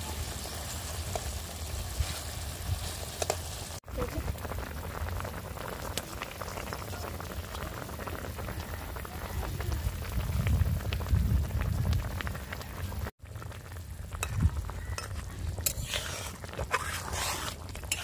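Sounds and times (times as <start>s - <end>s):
curry boiling and crackling: 0.0s - 18.0s.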